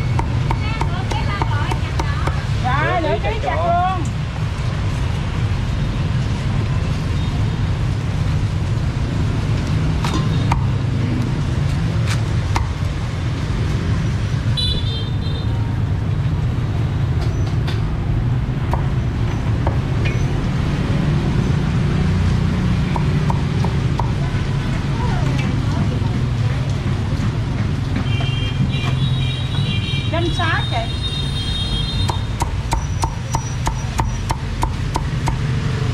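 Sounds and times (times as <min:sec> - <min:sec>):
street traffic rumble: 0:00.0 - 0:35.9
cleaver chopping on wooden block: 0:22.9 - 0:24.2, 0:32.0 - 0:35.5.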